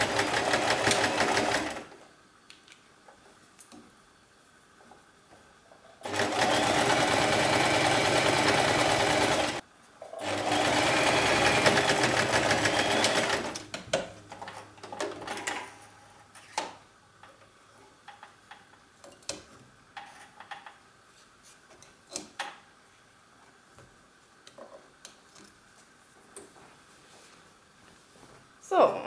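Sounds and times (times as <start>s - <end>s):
sewing machine stitching: 0.0s - 1.9s, 6.0s - 13.7s.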